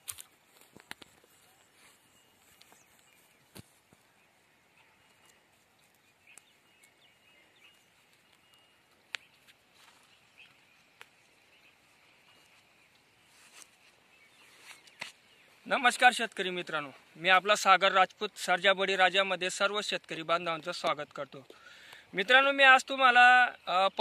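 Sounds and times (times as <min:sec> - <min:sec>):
faint bird chirps: 0:00.8 - 0:15.9.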